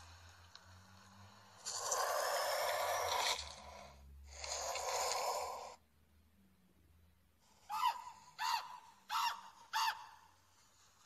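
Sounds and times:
squawking bird calls: 7.6s - 10.4s.

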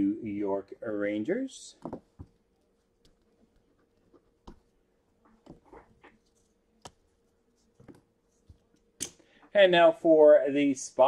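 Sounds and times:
faint steady hum: 0.0s - 11.0s
faint clicks and taps: 1.8s - 9.6s.

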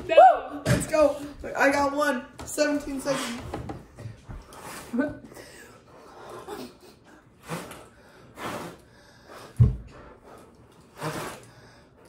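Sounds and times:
puffs of breath blowing: 7.4s - 10.0s, 10.9s - 12.0s.

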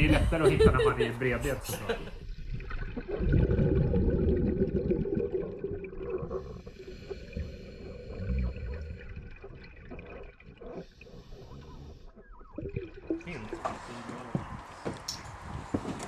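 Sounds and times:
muffled underwater water rumble: 0.0s - 14.7s
water splashing: 1.2s - 14.8s
scuba regulator breathing bubbles: 2.1s - 14.1s.

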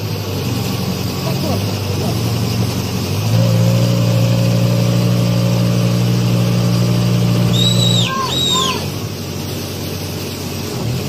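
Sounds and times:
heavy machinery engine running: 0.0s - 11.0s
high chirp: 7.5s - 8.8s.

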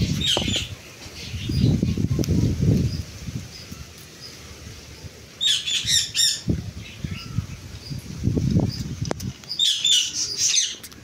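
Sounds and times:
parakeets squawking: 5.4s - 7.5s.

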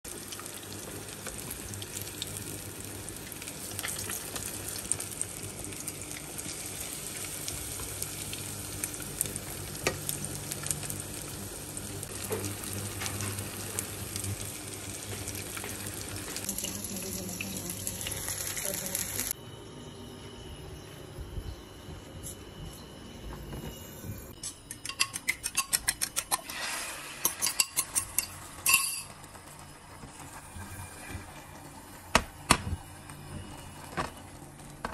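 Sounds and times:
oil crackling and popping: 0.3s - 6.5s.

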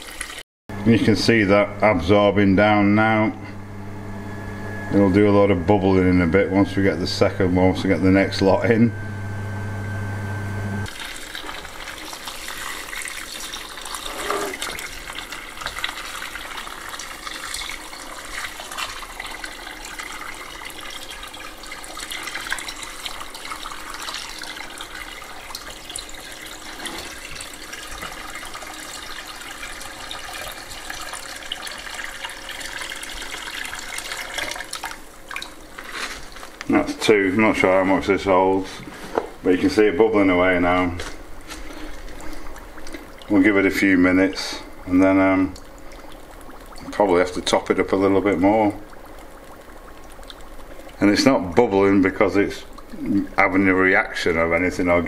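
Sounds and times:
water pouring into powder: 10.8s - 37.9s, 41.7s - 55.0s.

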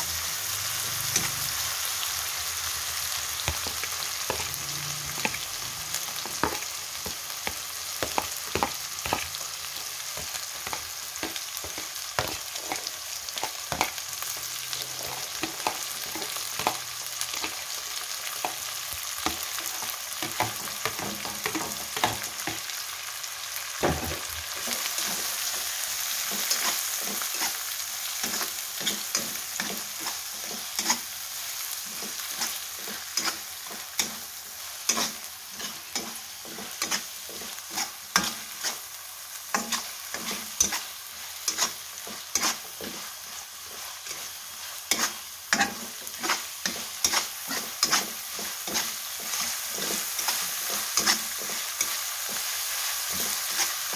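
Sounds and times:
food sizzling in hot oil: 0.0s - 53.9s
metal spatula scraping a wok: 26.2s - 38.9s, 39.5s - 53.9s.

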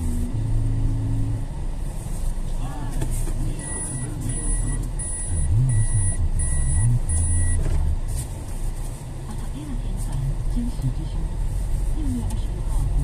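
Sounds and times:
vehicle low rumble: 0.0s - 13.0s
electronic warning beeps: 3.6s - 7.8s.

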